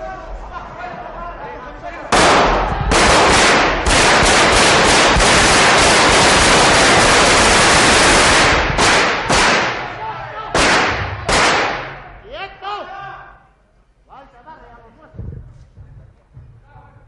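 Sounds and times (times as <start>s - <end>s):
automatic gunfire bursts: 2.2s - 9.9s, 10.6s - 12.0s.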